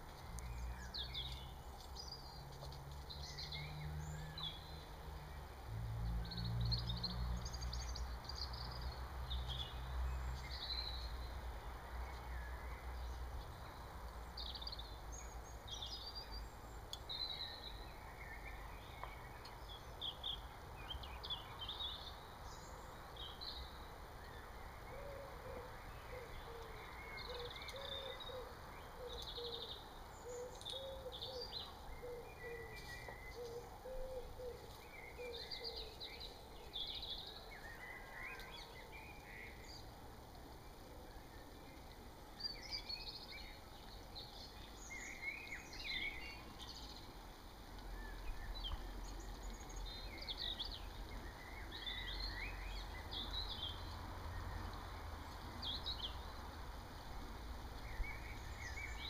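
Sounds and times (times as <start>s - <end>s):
songbirds chirping and trilling: 0.0s - 59.0s
low repeated bird call: 23.6s - 39.9s.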